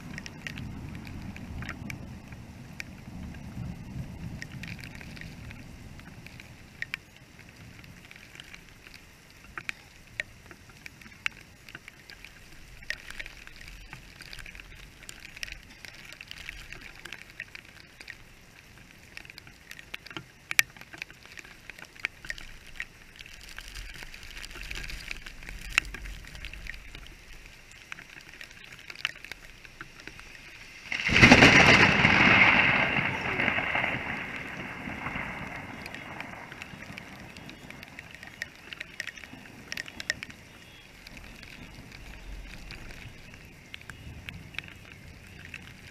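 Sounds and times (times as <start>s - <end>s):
raindrops ticking on camera: 0.0s - 45.9s
steady rain: 0.0s - 45.9s
loud thunderclap rumbling: 31.0s - 37.2s.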